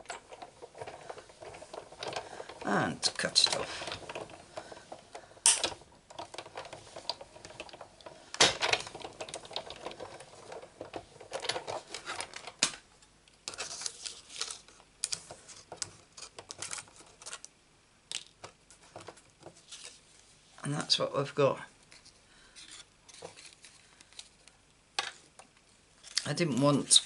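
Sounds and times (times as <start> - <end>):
handling plates and card: 21.8 - 27.0.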